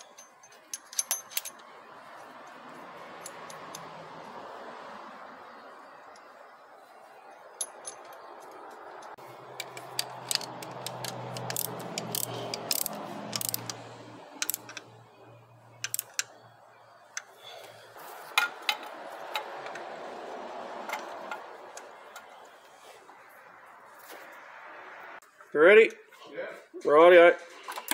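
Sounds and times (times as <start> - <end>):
metallic clicks of tools: 0.0 - 1.7, 7.6 - 14.9, 15.7 - 16.5.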